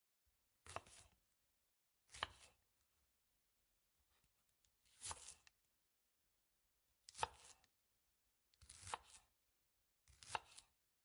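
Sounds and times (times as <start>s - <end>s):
knife slicing on cutting board: 0.6s - 1.2s, 2.1s - 2.6s, 4.8s - 5.5s, 7.1s - 7.7s, 8.6s - 9.3s, 10.0s - 10.8s.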